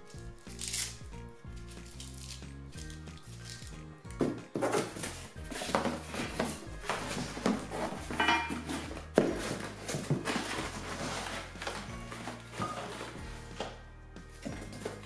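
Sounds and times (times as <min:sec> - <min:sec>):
background music with bass line: 0:00.0 - 0:15.0
cardboard rustling and scraping: 0:04.2 - 0:15.0
metal brackets knocking and clinking: 0:08.1 - 0:08.7.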